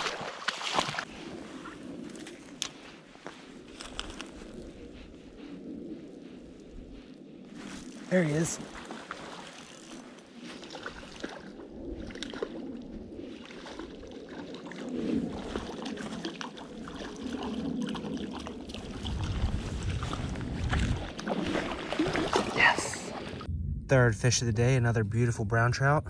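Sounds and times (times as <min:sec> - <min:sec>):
water splashing: 0:00.0 - 0:02.7, 0:08.1 - 0:23.5
low rumble on microphone: 0:22.0 - 0:26.0.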